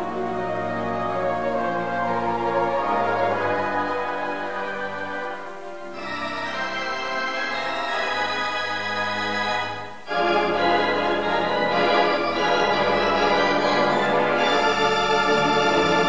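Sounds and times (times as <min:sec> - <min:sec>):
organ playing sustained chords: 0:00.0 - 0:16.0.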